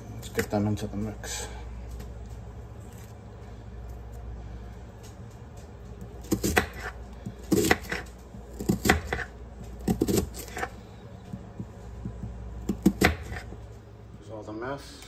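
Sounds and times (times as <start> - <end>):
steady low hum: 0.0 - 15.0
knife cutting onion: 6.0 - 13.6.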